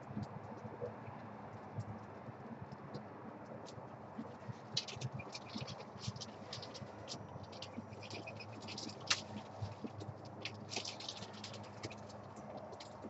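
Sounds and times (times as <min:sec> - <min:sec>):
birds chirping: 0:04.2 - 0:13.0.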